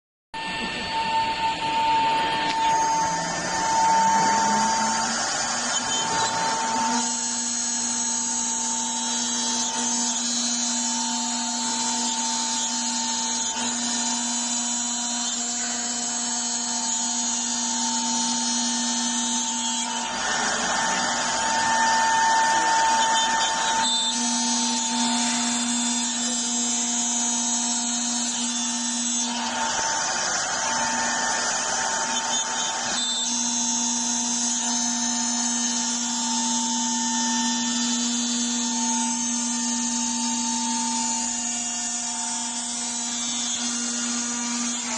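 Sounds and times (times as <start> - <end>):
router spindle whining: 0.3 - 44.9
lower tone rising in pitch: 0.4 - 7.0
bit cutting into wood: 0.4 - 44.9.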